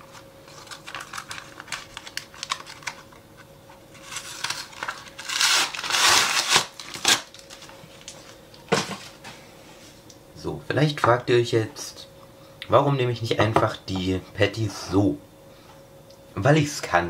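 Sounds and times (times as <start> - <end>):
plastic packaging crumpling: 0.0 - 3.1, 4.0 - 8.4.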